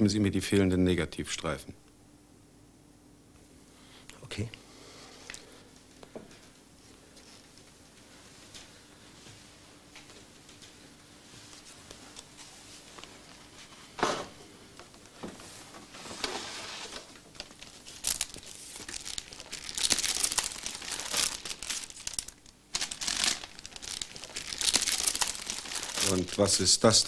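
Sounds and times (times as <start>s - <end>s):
paper rustling and crinkling: 14.9s - 26.7s.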